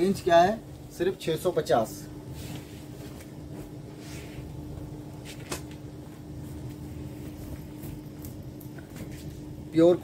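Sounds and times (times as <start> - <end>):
steady low hum: 0.0 - 10.0
clothes rustling: 2.3 - 4.6.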